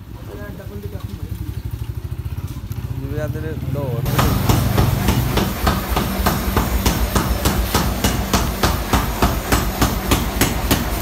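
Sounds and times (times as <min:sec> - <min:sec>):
hammer strikes on metal: 0:04.1 - 0:11.0.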